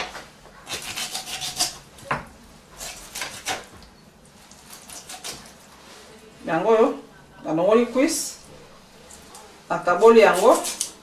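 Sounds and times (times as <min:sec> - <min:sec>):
knife cutting raw chicken: 0:00.7 - 0:01.8, 0:10.2 - 0:11.0.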